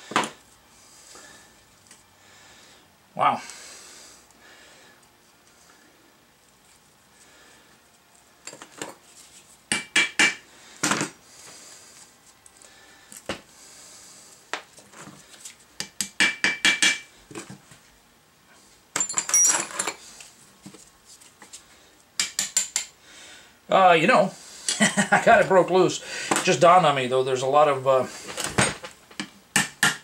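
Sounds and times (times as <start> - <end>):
hammer striking steel punch: 9.7 - 10.4, 15.8 - 17.1.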